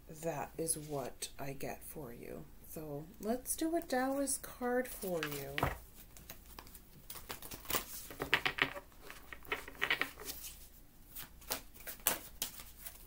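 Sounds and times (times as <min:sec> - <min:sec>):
cards being shuffled: 0:05.1 - 0:13.0.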